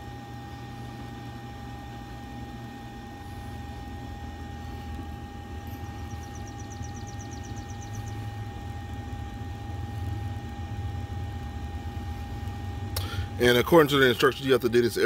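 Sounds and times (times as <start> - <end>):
grill fan motor hum and whine: 0.0 - 15.0
high chirps: 5.8 - 8.2.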